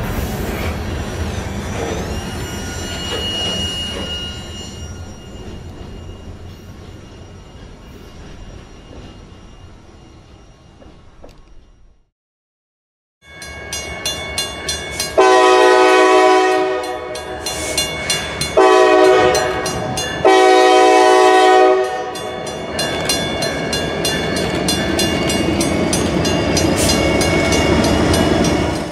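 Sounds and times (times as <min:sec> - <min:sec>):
train rumble and wheel clatter: 0:00.0 - 0:12.1, 0:13.3 - 0:28.9
crossing bell ringing: 0:01.4 - 0:12.0, 0:13.2 - 0:28.9
locomotive air horn blasts: 0:15.0 - 0:17.9, 0:18.6 - 0:22.2.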